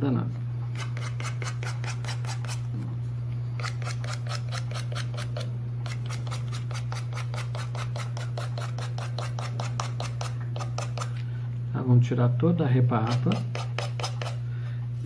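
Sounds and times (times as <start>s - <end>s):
nail file rasping: 0.8s - 2.6s, 3.6s - 11.2s, 13.0s - 14.4s.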